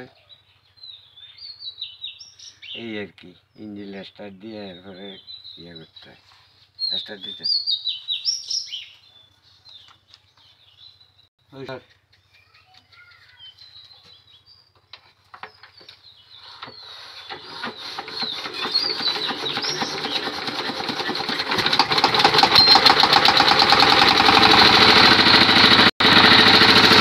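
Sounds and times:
diesel engine starting and running: 16.4 - 27.0.

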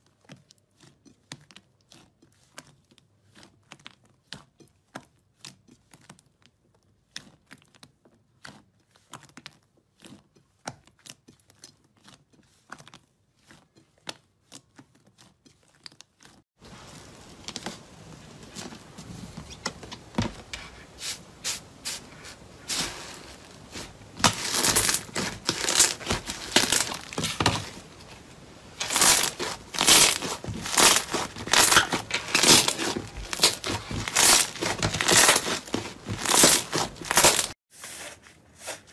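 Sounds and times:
slime squishing and popping: 28.8 - 37.5.

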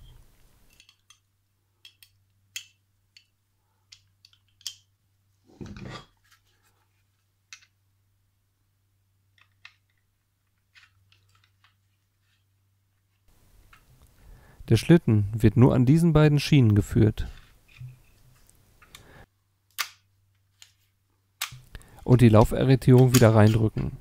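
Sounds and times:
pistol parts clicking and tapping: 0.7 - 4.9, 21.4 - 23.7.

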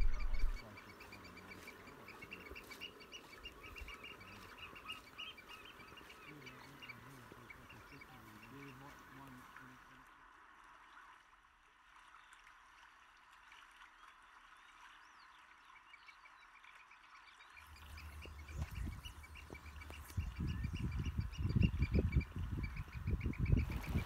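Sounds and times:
wind buffeting microphone: 0.0 - 0.6, 18.0 - 24.0
faint bird calls: 0.0 - 10.0.

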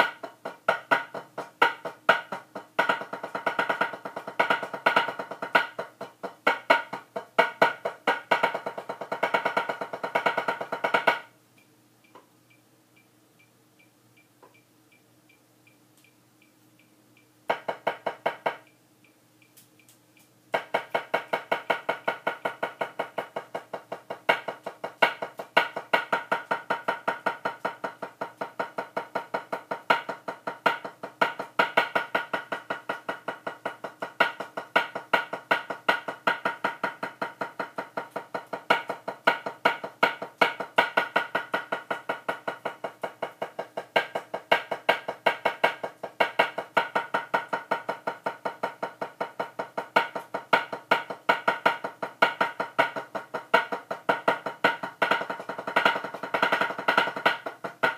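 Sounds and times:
drumsticks on rubber practice pad: 20.5 - 57.9.

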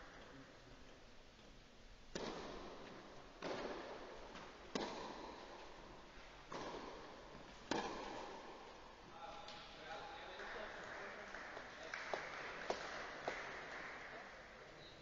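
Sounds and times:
tennis ball hit by rackets: 2.1 - 8.7.

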